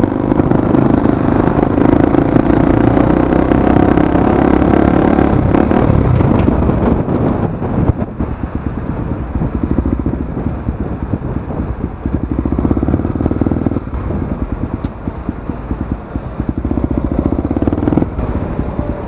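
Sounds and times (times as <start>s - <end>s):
motorcycle engine putting: 9.6s - 19.0s.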